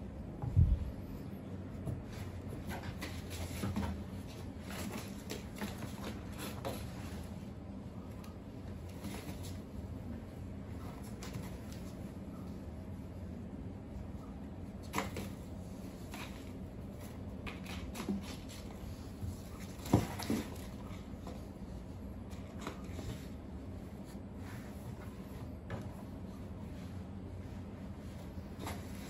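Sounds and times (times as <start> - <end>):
paws scraping cardboard: 1.9 - 7.5, 14.8 - 29.0.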